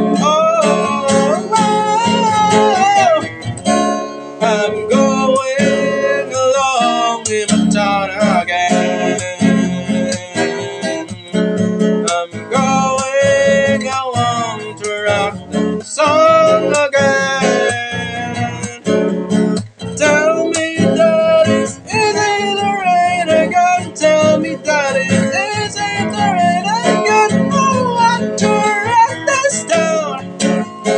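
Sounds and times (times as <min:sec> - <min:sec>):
man singing: 0:00.0 - 0:19.1, 0:19.8 - 0:30.9
acoustic guitar strumming: 0:00.0 - 0:30.9.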